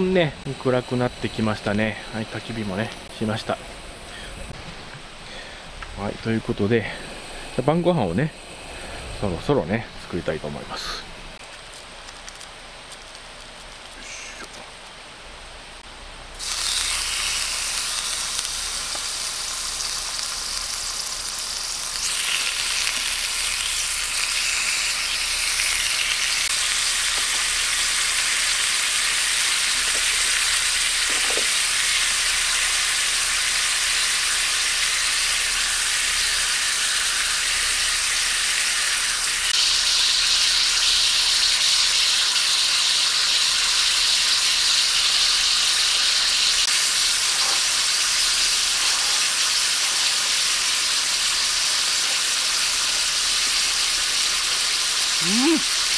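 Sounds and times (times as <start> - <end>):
meat sizzling in a skillet: 16.4 - 55.9.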